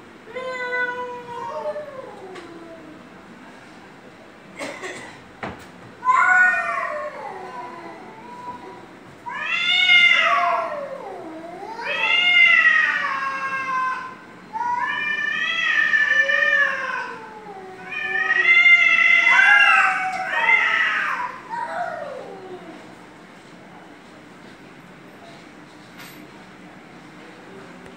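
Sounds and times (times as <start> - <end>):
cats yowling: 0.3 - 3.1, 6.0 - 22.9.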